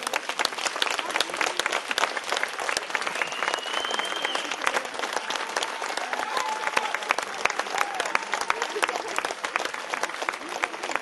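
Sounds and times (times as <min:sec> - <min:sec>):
audience applauding: 0:00.0 - 0:11.0
high whistle: 0:03.2 - 0:04.5.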